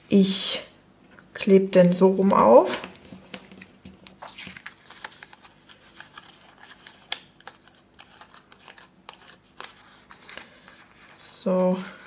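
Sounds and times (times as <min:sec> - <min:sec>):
paper rustling: 0:03.0 - 0:12.0.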